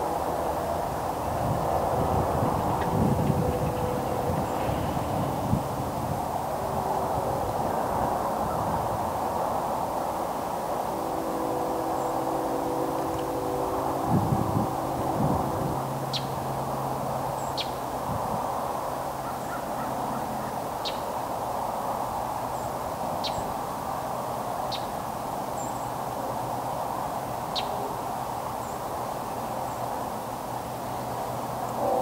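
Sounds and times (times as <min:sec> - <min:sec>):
distant freight train: 0:00.0 - 0:32.0.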